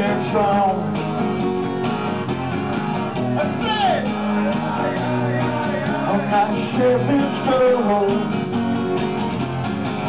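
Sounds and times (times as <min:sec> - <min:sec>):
man singing: 0:00.0 - 0:01.4, 0:03.4 - 0:08.6
acoustic guitar strumming: 0:00.0 - 0:10.0.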